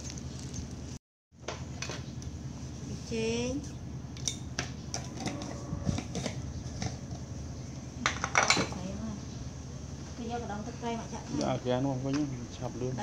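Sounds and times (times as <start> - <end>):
steady low hum: 0.0 - 13.0
dishes and utensils clinking: 8.0 - 8.8.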